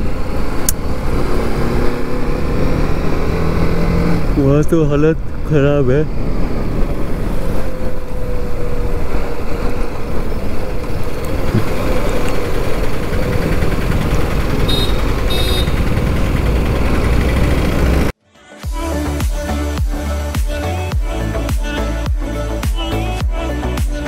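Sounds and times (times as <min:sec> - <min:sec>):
wind noise: 0:00.0 - 0:18.0
motorcycle engine running: 0:00.0 - 0:18.2.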